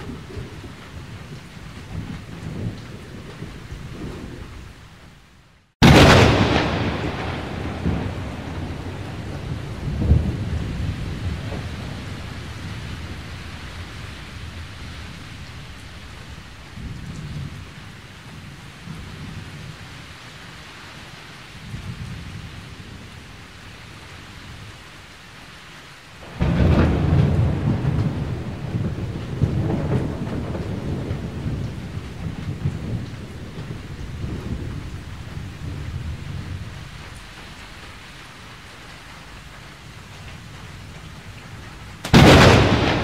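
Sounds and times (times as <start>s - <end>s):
thunder rumbling: 0.0s - 5.2s, 5.8s - 19.8s, 26.2s - 38.0s, 39.2s - 43.0s
steady rain: 0.0s - 43.0s
loud peal of thunder: 5.8s - 15.7s, 26.2s - 36.8s, 42.1s - 43.0s.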